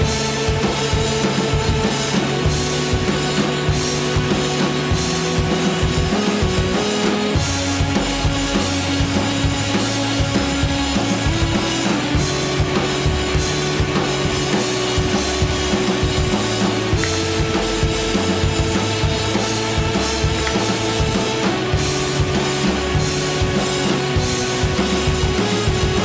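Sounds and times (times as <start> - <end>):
rock music with drums and bass: 0.0 - 26.0.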